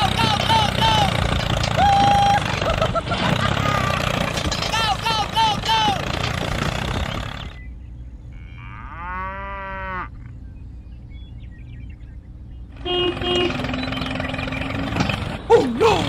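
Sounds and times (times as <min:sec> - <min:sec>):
toy tractor engine: 0:00.0 - 0:07.6, 0:12.8 - 0:16.0
low steady hum: 0:00.0 - 0:13.9
cow mooing: 0:08.3 - 0:10.2.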